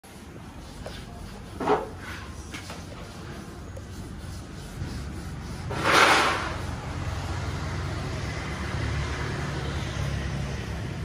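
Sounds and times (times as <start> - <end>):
engine rumbling: 3.0 - 11.0.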